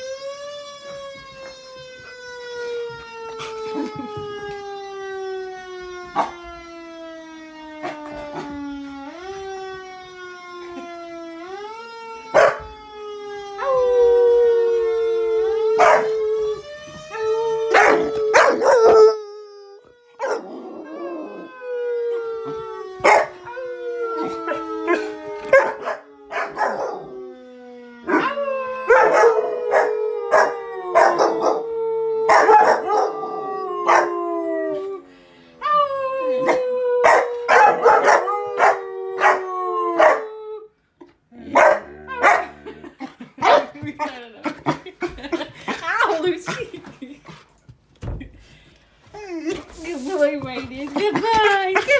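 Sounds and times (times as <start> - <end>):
puppy barking: 12.4 - 12.6, 20.2 - 20.4, 40.0 - 40.2, 41.5 - 42.5, 43.4 - 43.8.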